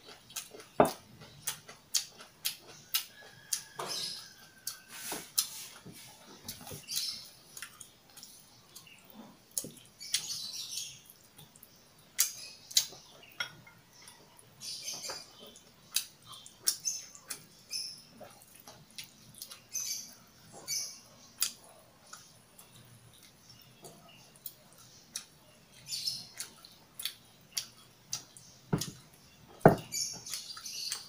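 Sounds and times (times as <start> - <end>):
wet chewing and lip smacks: 0.0 - 13.4, 18.2 - 29.2, 30.2 - 31.0.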